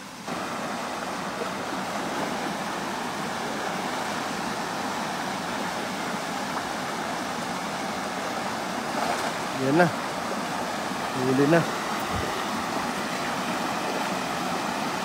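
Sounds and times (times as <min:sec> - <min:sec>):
water rushing over rocks: 0:00.0 - 0:15.0.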